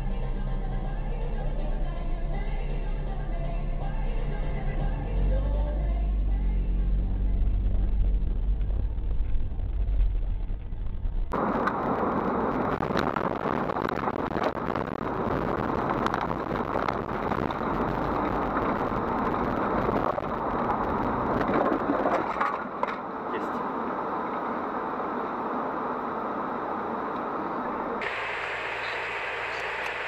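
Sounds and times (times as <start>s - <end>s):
car rumbling on road: 0.0s - 29.6s
crackles: 7.0s - 23.6s, 28.0s - 30.0s
wind blasting microphone: 7.6s - 22.9s.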